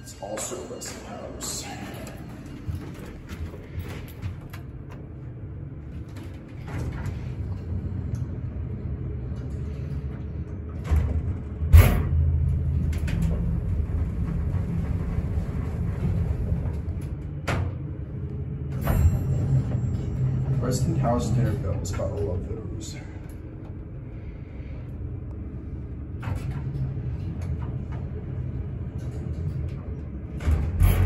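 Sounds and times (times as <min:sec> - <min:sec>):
elevator low hum: 0:00.0 - 0:31.0
elevator doors rumbling shut: 0:00.9 - 0:31.0
elevator car thud: 0:10.8 - 0:18.0.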